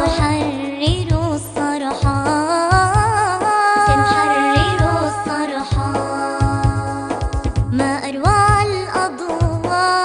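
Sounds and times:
steady drum beat: 0.0s - 10.0s
singing held wavering notes: 3.9s - 7.0s.

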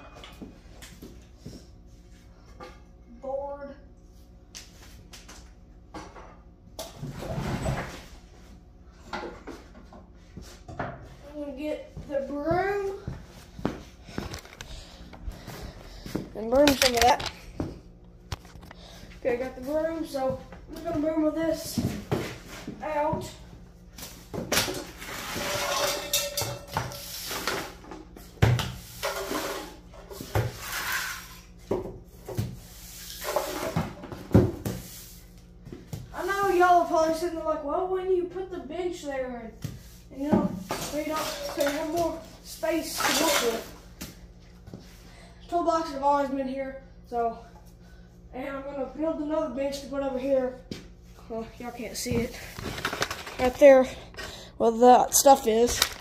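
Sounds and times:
broom bristles sweeping floor: 26.7s - 31.4s, 32.2s - 33.9s, 34.5s - 35.5s.

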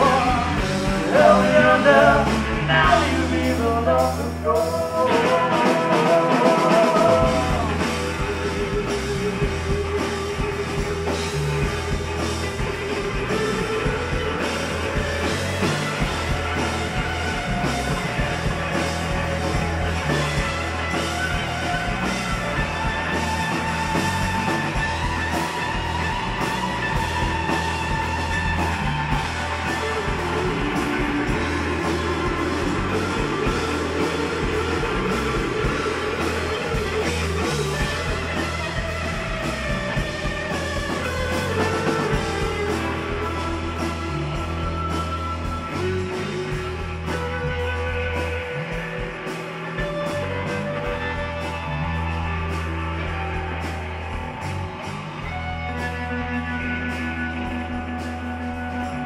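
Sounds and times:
woman singing: 0.0s - 7.8s
live rock band playing: 0.0s - 59.0s.

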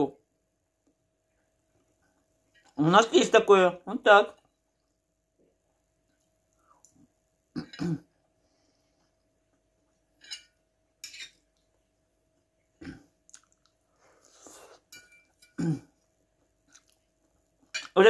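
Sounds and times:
fork clinking on a plate: 10.2s - 11.4s, 14.9s - 15.6s
chewing: 12.8s - 17.9s.

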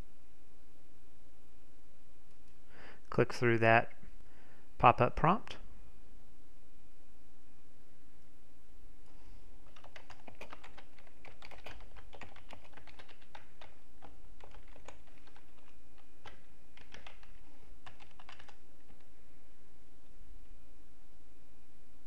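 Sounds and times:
typing on keyboard: 9.6s - 19.1s.

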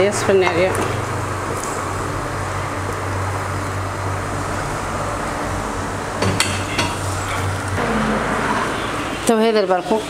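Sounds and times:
pot boiling on gas burner: 0.0s - 10.0s
kitchen utensils clinking: 6.2s - 7.6s.

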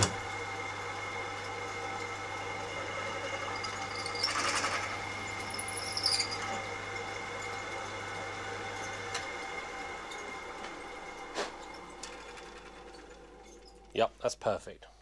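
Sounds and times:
drill press motor hum: 0.0s - 13.9s
drill bit cutting metal: 2.9s - 6.7s.

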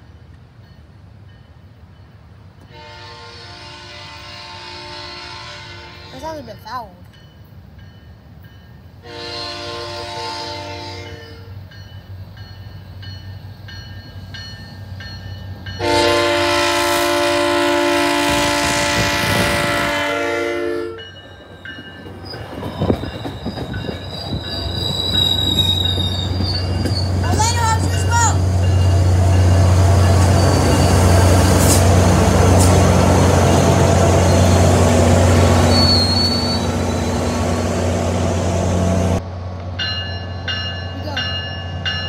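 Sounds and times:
train rumbling: 0.0s - 42.0s
train horn blasts: 2.7s - 6.3s, 9.0s - 11.6s, 15.8s - 21.1s
train wheel squeal: 21.0s - 31.9s, 34.2s - 37.8s.

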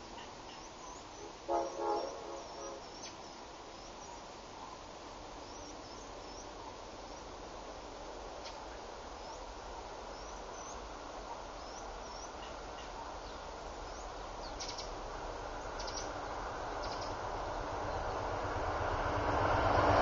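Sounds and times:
distant train rushing: 0.0s - 20.0s
bird chirps and trills: 0.1s - 4.2s, 11.6s - 15.0s, 15.6s - 16.2s, 16.8s - 17.2s.

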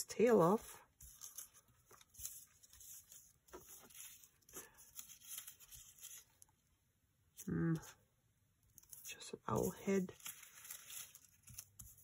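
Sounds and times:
paper rustling: 0.5s - 6.6s, 8.7s - 12.0s.

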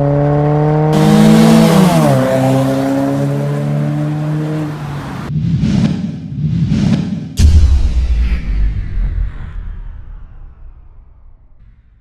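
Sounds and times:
passing traffic: 0.0s - 7.4s.

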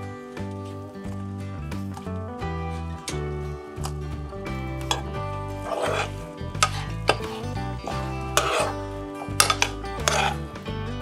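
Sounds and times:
background music with held notes: 0.0s - 11.0s
spatula scraping frying pan: 4.8s - 10.7s.

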